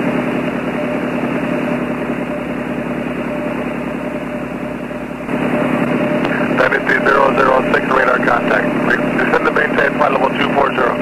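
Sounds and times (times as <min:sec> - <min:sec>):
faint hum: 0:00.0 - 0:11.0
radio hiss: 0:06.2 - 0:11.0.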